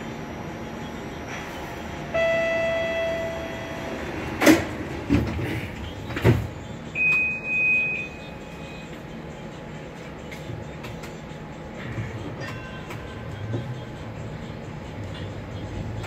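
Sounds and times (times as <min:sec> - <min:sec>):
door warning tone: 0:02.0 - 0:04.6, 0:07.0 - 0:08.9
high steady beep: 0:02.1 - 0:04.1, 0:06.9 - 0:08.9
sliding doors clunking shut: 0:03.8 - 0:06.6.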